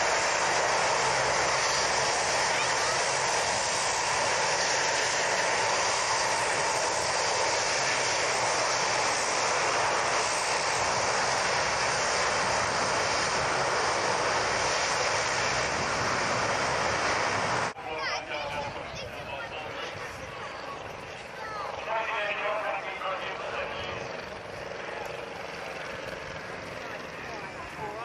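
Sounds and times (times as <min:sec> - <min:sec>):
turboprop engines running: 0:00.0 - 0:28.0.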